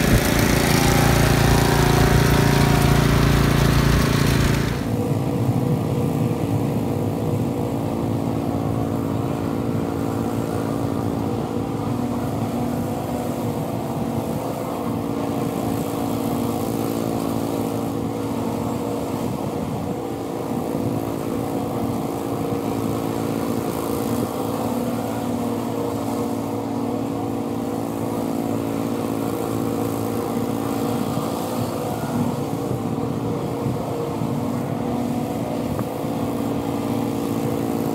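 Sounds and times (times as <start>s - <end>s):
lawn mower engine running: 0.0s - 5.0s.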